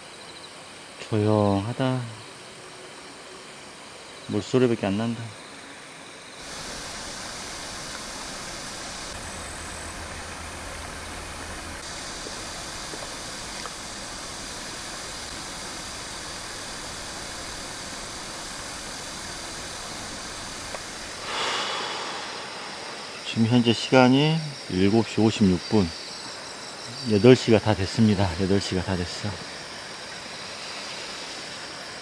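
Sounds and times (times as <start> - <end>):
stream water flowing: 0.1 - 32.0.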